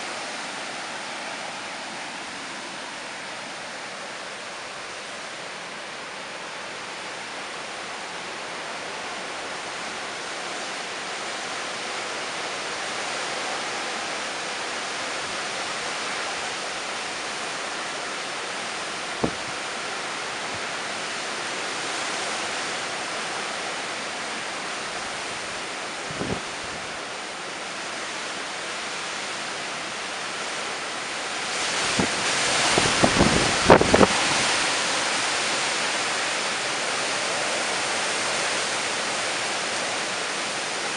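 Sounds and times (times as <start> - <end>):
wind and heavy rain rushing: 0.0 - 40.9
wind buffeting microphone: 19.2 - 19.6, 26.0 - 27.0, 31.8 - 34.6.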